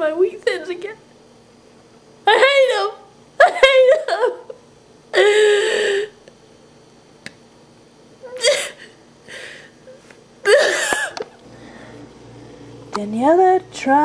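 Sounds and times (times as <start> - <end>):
woman sobbing: 2.3 - 6.2, 8.2 - 11.2
gasping breath: 8.8 - 9.8.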